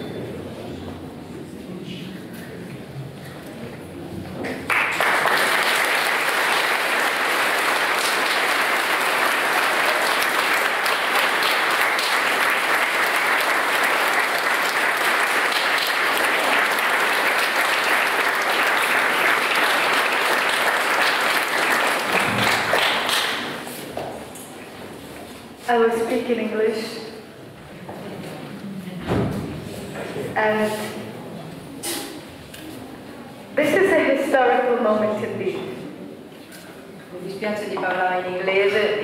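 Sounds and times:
audience applauding: 4.4 - 23.8.

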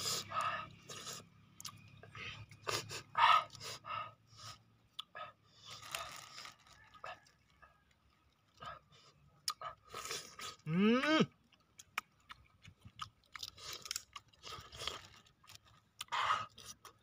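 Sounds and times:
man chewing and crunching: 0.0 - 17.0
plastic bag crackling: 5.8 - 6.8.

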